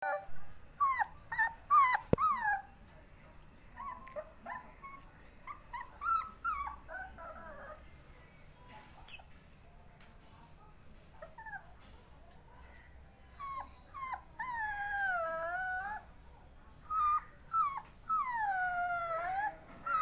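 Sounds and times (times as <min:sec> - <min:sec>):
puppy whining: 0:00.0 - 0:02.8, 0:03.8 - 0:07.9, 0:11.2 - 0:11.8, 0:13.3 - 0:16.1, 0:16.8 - 0:20.0.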